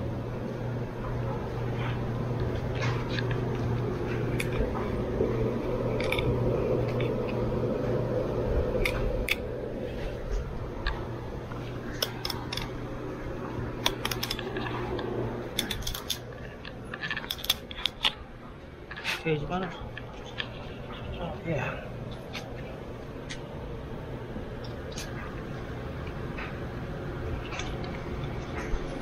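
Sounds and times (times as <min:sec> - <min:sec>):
steady low hum: 0:00.0 - 0:29.0
knife clicking and scraping: 0:15.6 - 0:16.3.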